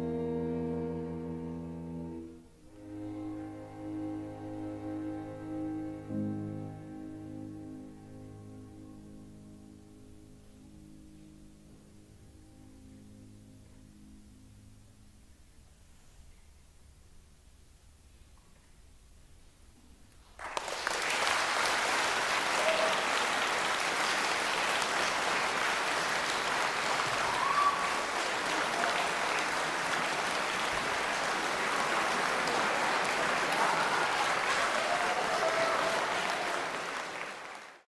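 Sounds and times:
audience applauding: 0:20.3 - 0:37.9.

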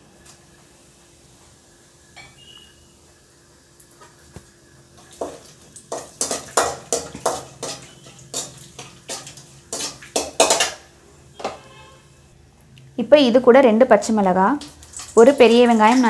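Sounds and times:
ladle scraping metal pan: 0:05.9 - 0:10.8.

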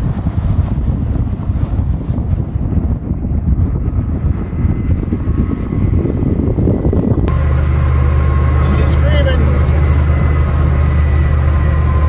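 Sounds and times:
road and wind noise rumble: 0:00.0 - 0:12.0
wind buffeting microphone: 0:00.0 - 0:12.0.

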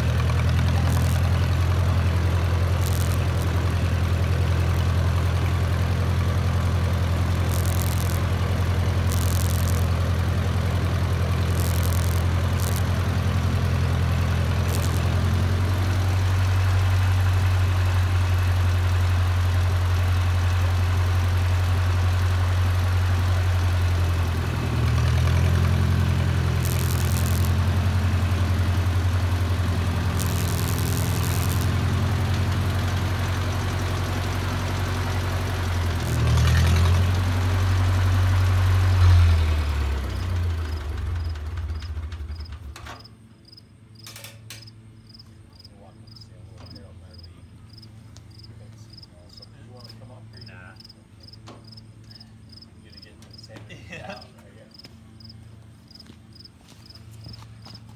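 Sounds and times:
tractor engine chugging: 0:00.0 - 0:43.2.

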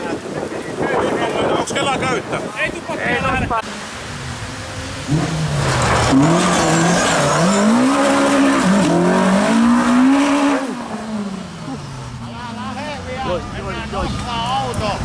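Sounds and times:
car engine revving: 0:03.7 - 0:12.4
tyres on gravel: 0:05.2 - 0:09.9.

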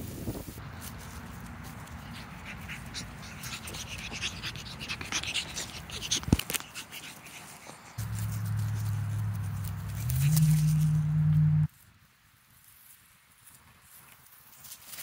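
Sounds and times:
puppy panting and snuffling: 0:01.6 - 0:11.0.

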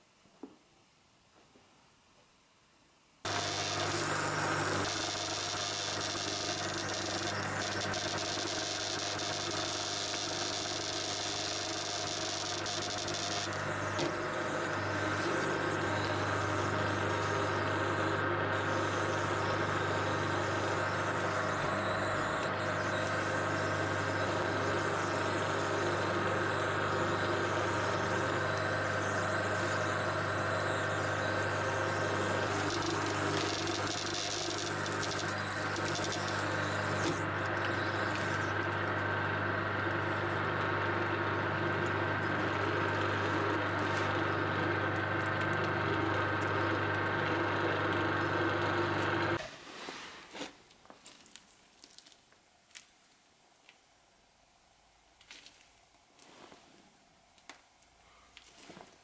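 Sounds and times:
shredder running: 0:03.3 - 0:49.4.

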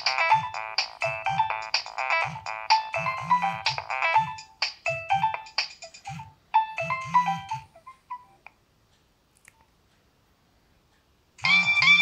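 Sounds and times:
polyphonic phone ringtone: 0:00.0 - 0:08.4, 0:11.4 - 0:12.0.

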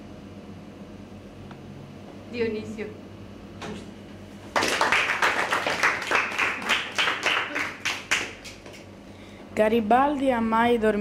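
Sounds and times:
small group clapping: 0:04.4 - 0:08.9.

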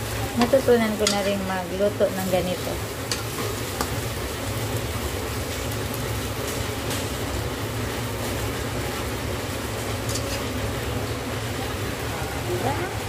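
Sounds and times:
gas burner rumble: 0:00.0 - 0:13.0
omelette frying hiss: 0:00.0 - 0:13.0
metal spatula clicking on pan: 0:00.4 - 0:01.3, 0:03.1 - 0:04.0.

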